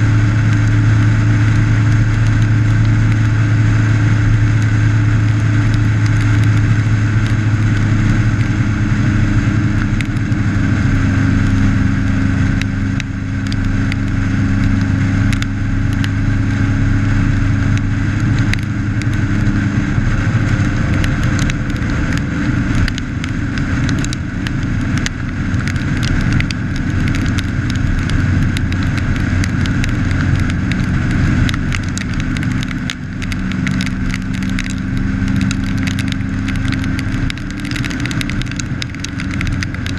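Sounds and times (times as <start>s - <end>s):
motorcycle engine cruising: 0.0s - 39.9s
wind rushing over microphone: 0.0s - 39.9s.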